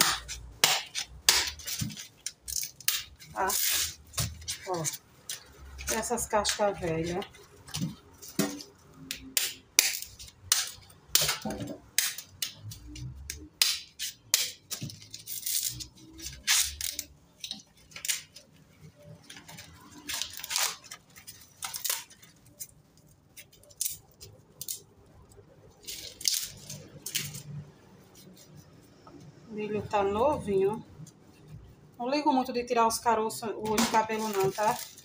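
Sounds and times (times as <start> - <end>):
corn husks ripping: 8.2 - 27.6, 33.8 - 35.0.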